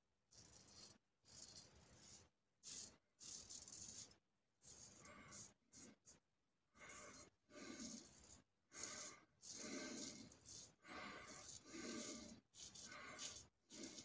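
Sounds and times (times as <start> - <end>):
razor scraping stubble: 7.1 - 14.0.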